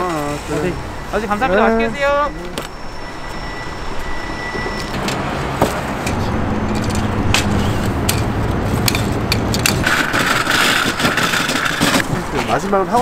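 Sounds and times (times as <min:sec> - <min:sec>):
metal folding table clanking: 0:08.1 - 0:12.1.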